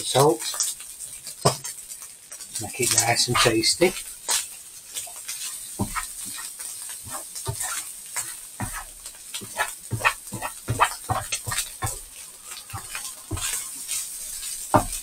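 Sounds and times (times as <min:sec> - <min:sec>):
rice sizzling in frying pan: 0:00.0 - 0:15.0
utensil scraping pan: 0:02.8 - 0:04.4, 0:05.2 - 0:15.0.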